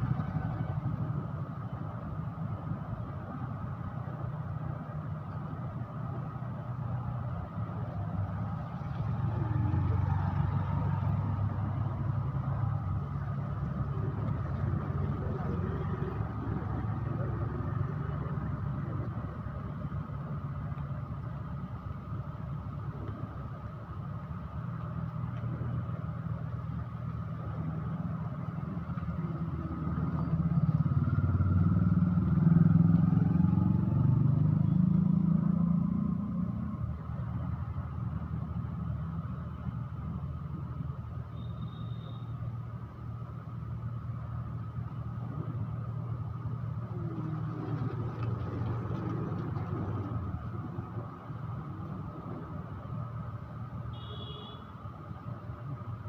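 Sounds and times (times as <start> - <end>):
motorcycle passing by: 8.5 - 19.4, 29.2 - 36.8, 46.8 - 52.6.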